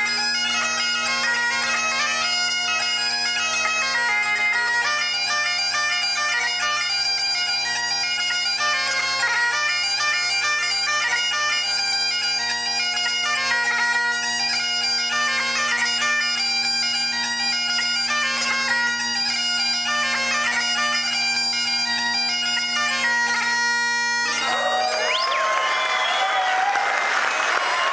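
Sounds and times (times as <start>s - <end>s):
bagpipe playing a quick tune: 0.0s - 27.9s
audience applause and cheers: 24.4s - 27.9s.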